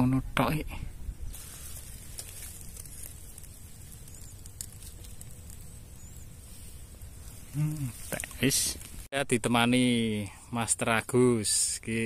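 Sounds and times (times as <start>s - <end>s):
faint high chirps: 3.6s - 8.0s.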